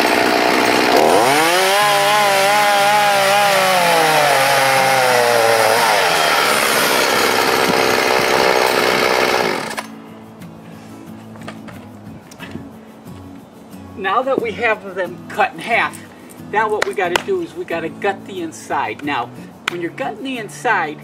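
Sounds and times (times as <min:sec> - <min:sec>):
chainsaw cutting log: 0:00.0 - 0:09.9.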